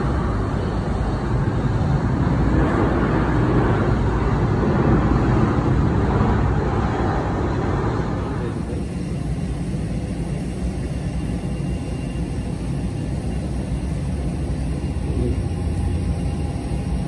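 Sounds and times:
jet engines running: 0:00.0 - 0:17.0.

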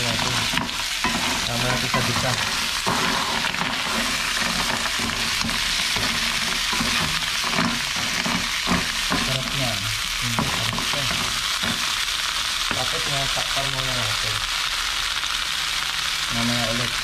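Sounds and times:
stirring knocks: 0:00.0 - 0:09.7, 0:10.3 - 0:12.0
mussels sizzling in a pan: 0:00.0 - 0:17.0.

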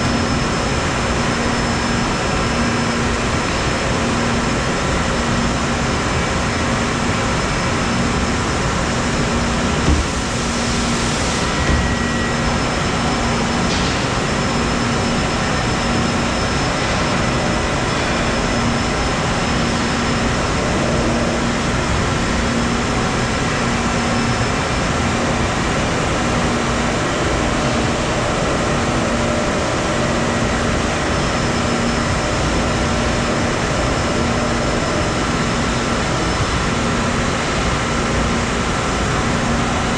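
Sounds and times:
machine hum: 0:00.0 - 0:39.9
steady whining tones: 0:00.0 - 0:39.9.

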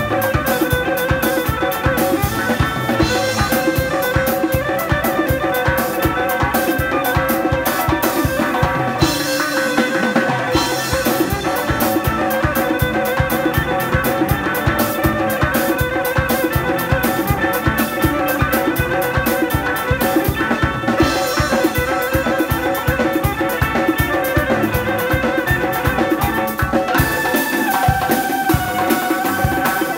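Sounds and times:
drums playing fast beat: 0:00.0 - 0:29.9
electric violin melody: 0:00.0 - 0:29.9.

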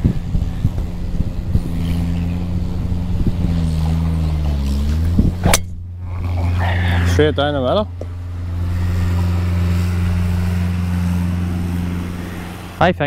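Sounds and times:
mower engine running: 0:00.0 - 0:13.0
golf club striking ball: 0:04.9 - 0:06.0, 0:07.9 - 0:09.2.

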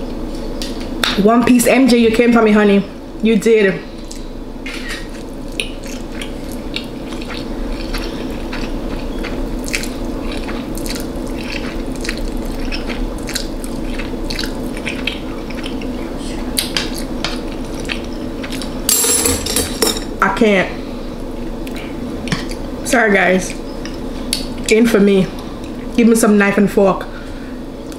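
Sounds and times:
person chewing food: 0:04.0 - 0:18.9, 0:21.2 - 0:22.8.

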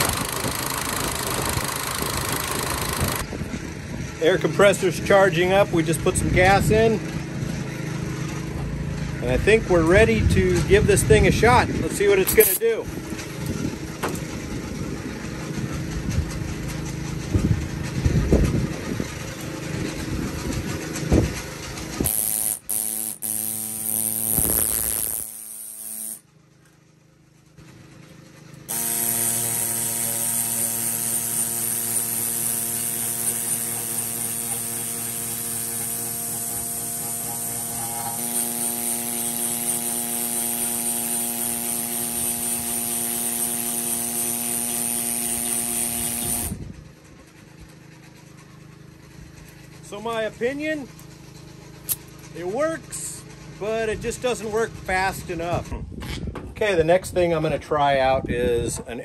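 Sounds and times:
pneumatic scraper buzzing on metal: 0:00.0 - 0:03.2, 0:11.9 - 0:14.5, 0:21.0 - 0:26.2, 0:28.6 - 0:46.7
exhaust air hissing: 0:19.8 - 0:26.2, 0:28.7 - 0:46.7.

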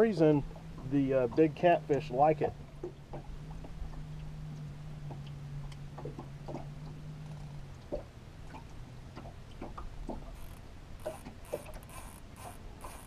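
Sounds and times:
light ticks and knocks: 0:00.4 - 0:11.9
electric motor humming: 0:10.3 - 0:13.0.

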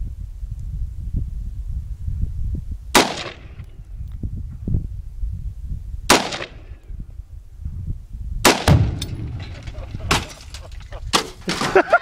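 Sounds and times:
rifle shots with echo: 0:03.0 - 0:03.6, 0:06.1 - 0:06.7, 0:08.4 - 0:10.3
low rumble: 0:06.8 - 0:11.0.

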